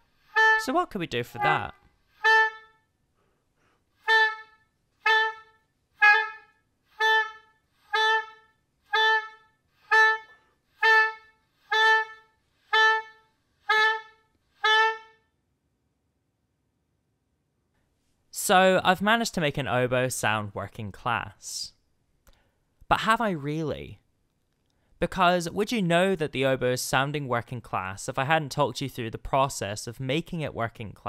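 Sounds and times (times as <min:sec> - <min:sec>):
oboe playing short notes: 0:00.3 - 0:02.9, 0:04.0 - 0:15.3.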